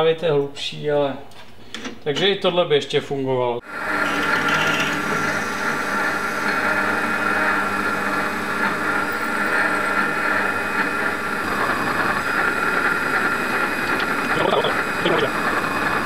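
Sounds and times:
drill scraping metal: 0:03.6 - 0:16.0
metal lathe whining and humming: 0:03.6 - 0:16.0.

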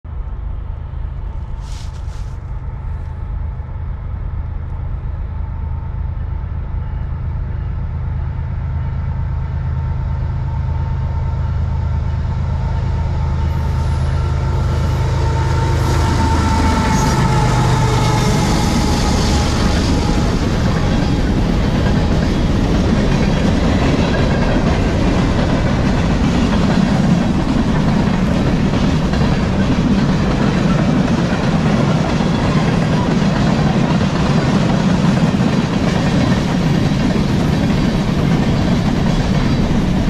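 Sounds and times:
locomotive diesel engine humming: 0:00.5 - 0:40.0.

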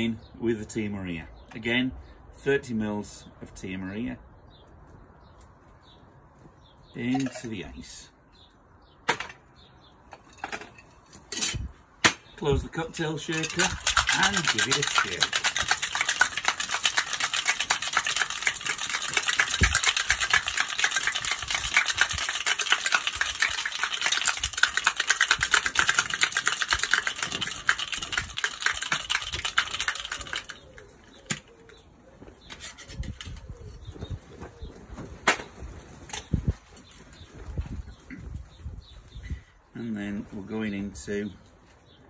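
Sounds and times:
ice rattling in cocktail shaker: 0:13.1 - 0:30.9.

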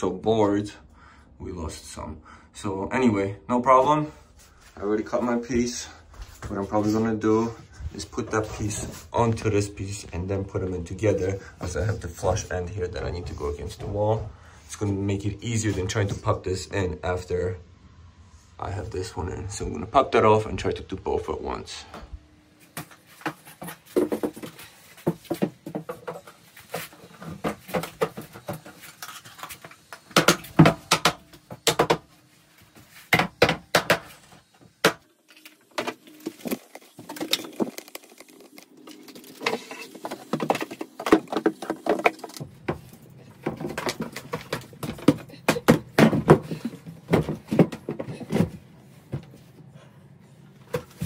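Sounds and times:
wooden boards knocking: 0:33.1 - 0:34.2.

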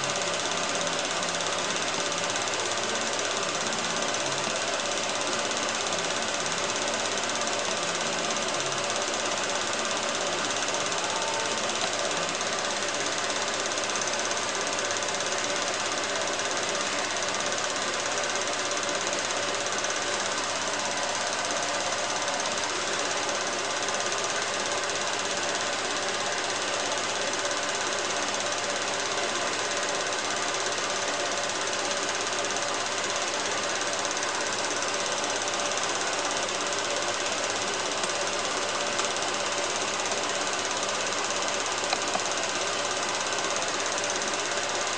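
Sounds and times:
film projector whirring: 0:00.0 - 0:44.9.

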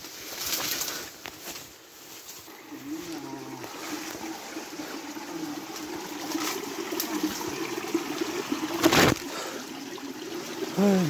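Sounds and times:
water trickling: 0:02.5 - 0:11.0.

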